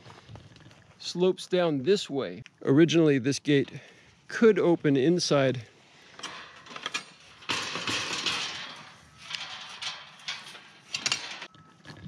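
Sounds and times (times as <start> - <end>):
metal gate clanking and rattling: 6.1 - 11.5
gate scraping on ground: 6.2 - 11.5.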